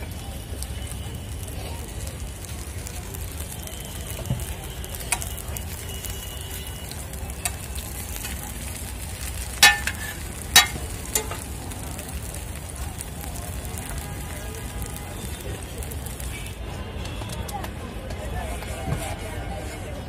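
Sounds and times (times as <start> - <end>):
patties sizzling in oil: 0.0 - 16.7
metal spatula clacking on griddle: 9.2 - 11.6.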